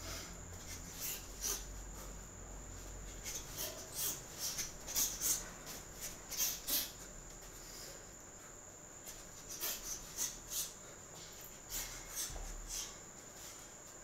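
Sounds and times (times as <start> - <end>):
sharp hissing exhalations: 11.7 - 13.0.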